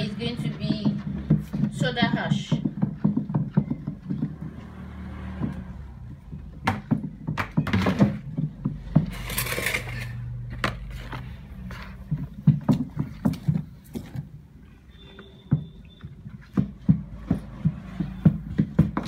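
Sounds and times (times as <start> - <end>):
stick knocking plastic basin: 0.0 - 9.2.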